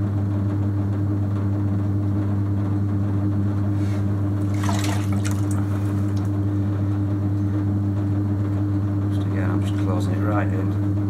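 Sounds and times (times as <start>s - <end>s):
potter's wheel humming: 0.0s - 11.0s.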